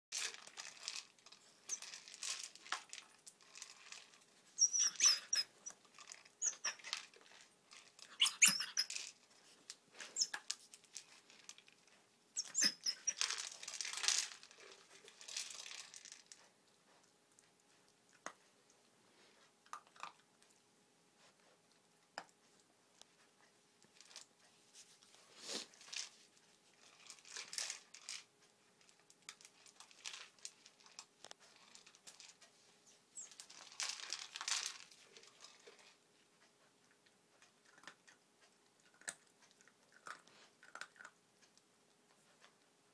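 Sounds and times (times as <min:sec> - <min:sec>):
plastic toy rattling and knocking: 0:12.4 - 0:16.3.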